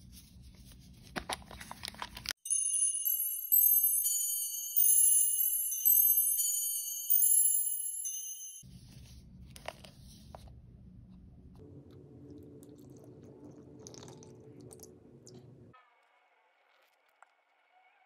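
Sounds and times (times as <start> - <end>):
handling plastic capsule: 0.3 - 2.4
bright chiming jingle: 2.4 - 8.6
water pouring: 12.2 - 15.6.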